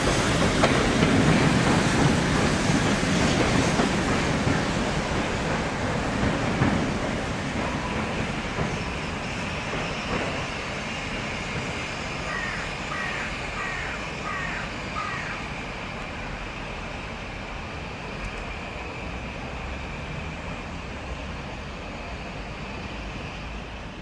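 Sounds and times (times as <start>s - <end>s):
steam locomotive rumble and hiss: 0.0s - 24.0s
bird cawing: 12.3s - 15.5s.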